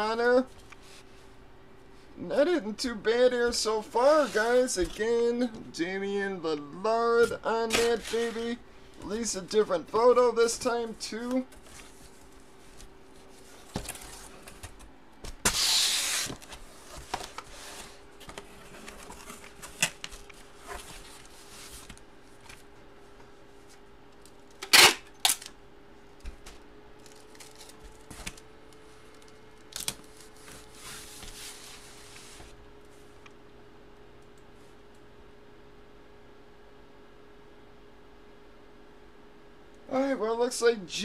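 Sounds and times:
faint steady hum: 0:00.0 - 0:41.0
packaging rustle: 0:27.0 - 0:28.4.

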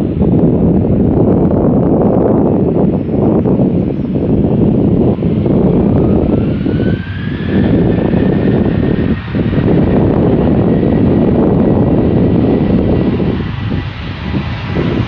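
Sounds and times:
jet engines whining: 0:00.0 - 0:15.0
wind rumble on microphone: 0:00.0 - 0:15.0.

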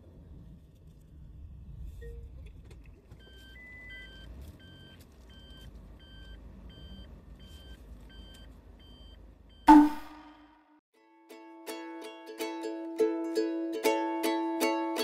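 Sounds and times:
engine humming: 0:00.0 - 0:10.6
reverse warning beeps: 0:03.2 - 0:10.4.

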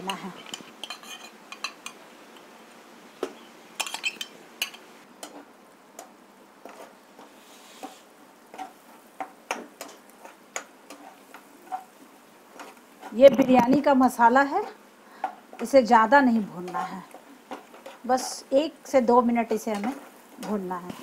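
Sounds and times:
spoon and spatula scraping: 0:00.0 - 0:02.0, 0:03.8 - 0:05.5, 0:06.6 - 0:13.8, 0:16.4 - 0:18.6, 0:19.5 - 0:21.0
faint sizzle: 0:00.0 - 0:21.0.

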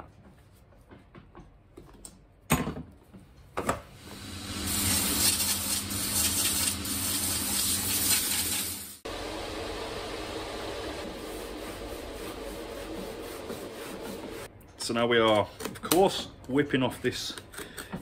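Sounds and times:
abrasive wheel grinding hiss: 0:04.0 - 0:09.0
finishing machine humming: 0:04.0 - 0:14.5.

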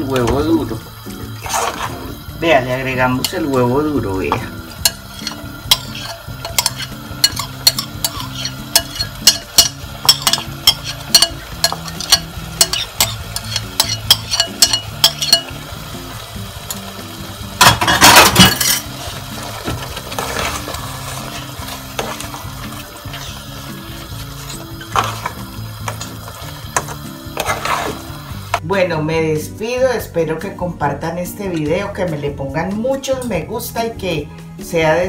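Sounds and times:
scraping stir in metal pot: 0:01.4 - 0:02.1, 0:04.8 - 0:15.5, 0:17.9 - 0:26.2, 0:26.8 - 0:28.1
metal spoon clinking on plate: 0:04.9 - 0:15.5.

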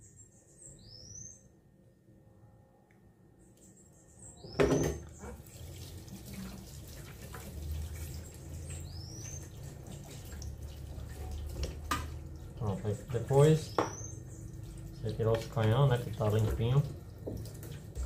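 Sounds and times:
tap water running into sink: 0:04.6 - 0:18.0.

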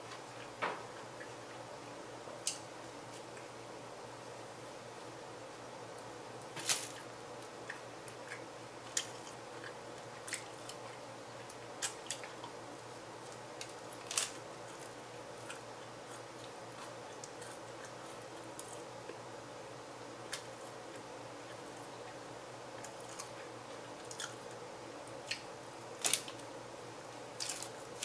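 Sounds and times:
person chewing: 0:22.8 - 0:24.6.

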